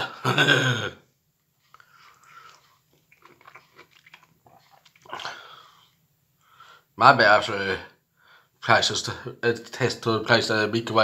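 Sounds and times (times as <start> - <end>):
person chewing: 1.6 - 6.0.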